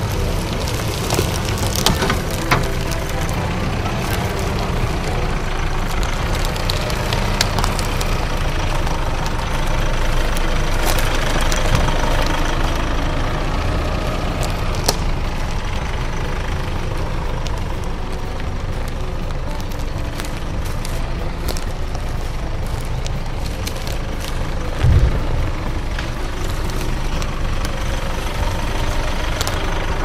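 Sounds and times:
diesel engine idling: 0:00.0 - 0:30.0
sharp clicks under tyres: 0:00.0 - 0:30.0.

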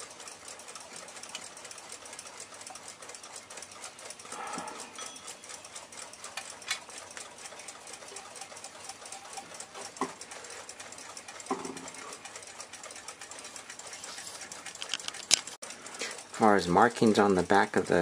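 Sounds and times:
alarm clock ticking fast: 0:00.0 - 0:14.8, 0:15.7 - 0:18.0
knocks from clock being handled: 0:11.5 - 0:11.9.

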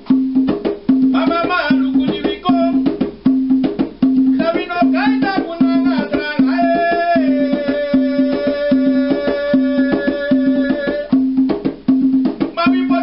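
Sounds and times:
hand drum rhythm: 0:00.0 - 0:13.0
man singing long note: 0:05.3 - 0:11.1.

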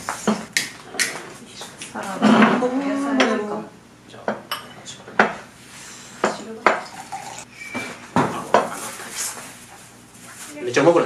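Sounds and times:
dishes clinking on wooden table: 0:04.3 - 0:05.4.

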